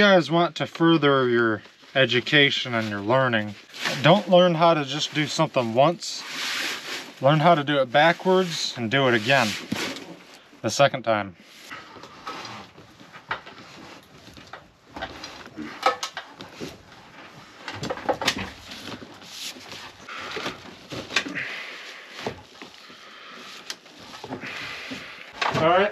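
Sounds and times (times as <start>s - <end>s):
cable scraping over wood: 2.7s - 10.3s.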